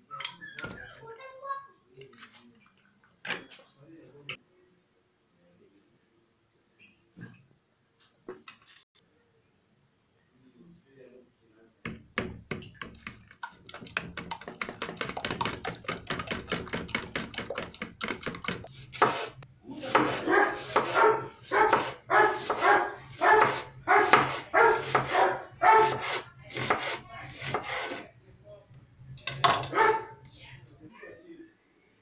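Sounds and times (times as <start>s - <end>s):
eggs beaten in a bowl: 11.9s - 21.0s
knife slicing onion on board: 18.0s - 28.0s
dog barking: 20.2s - 26.0s, 29.7s - 30.2s.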